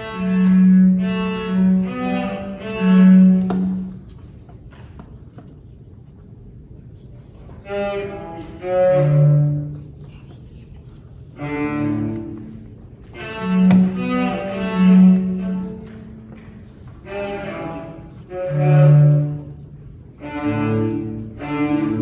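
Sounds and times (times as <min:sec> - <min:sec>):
bowed cello notes: 0:00.0 - 0:04.2, 0:07.6 - 0:10.1, 0:11.3 - 0:22.0.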